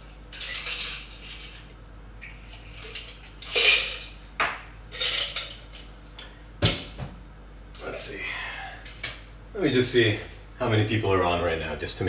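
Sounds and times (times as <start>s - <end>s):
cocktail shaker splashing and rattling: 0.3s - 4.1s.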